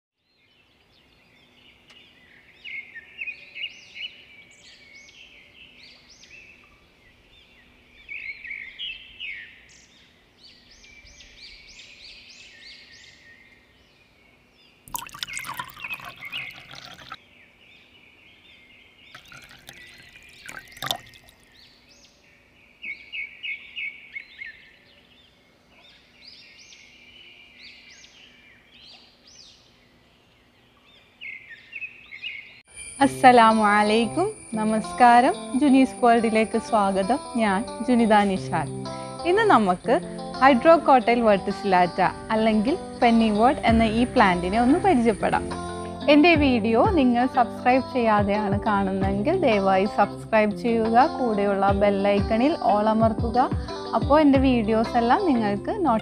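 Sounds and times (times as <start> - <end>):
birds chirping: 0.3 - 56.0
water pouring from watering can: 14.9 - 17.2, 19.2 - 21.5.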